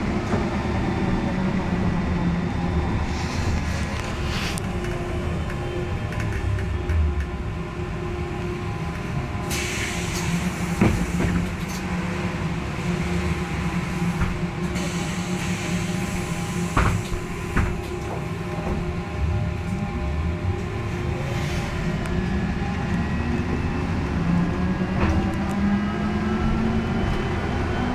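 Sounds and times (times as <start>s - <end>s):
road rumble: 0.0s - 27.9s
hiss: 9.5s - 11.7s, 14.7s - 17.6s.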